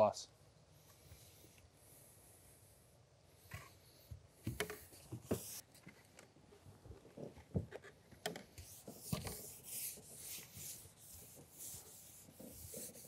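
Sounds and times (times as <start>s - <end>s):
scrub pad rasping on rubber: 8.7s - 13.0s.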